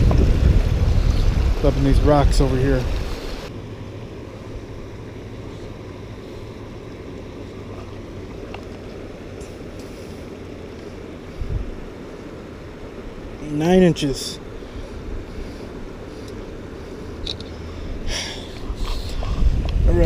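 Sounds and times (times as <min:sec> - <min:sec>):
wind on microphone: 0:00.0 - 0:03.5, 0:11.3 - 0:11.9, 0:18.6 - 0:20.0
river water running among rocks: 0:00.0 - 0:20.0.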